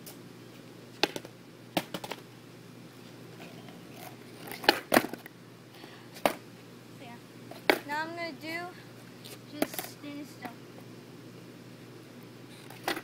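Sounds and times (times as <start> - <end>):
skateboard clacks on concrete: 1.0 - 2.2.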